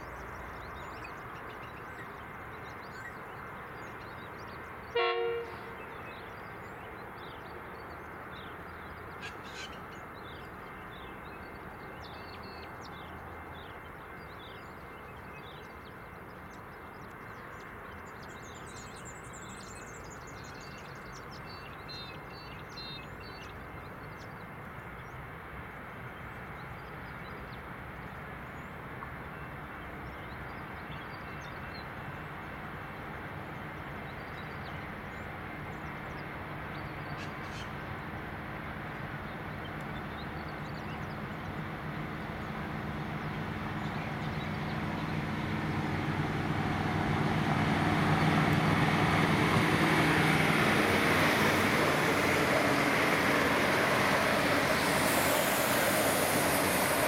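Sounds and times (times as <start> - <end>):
faint bird calls: 37.1 - 37.9
diesel train engine droning: 38.0 - 57.0.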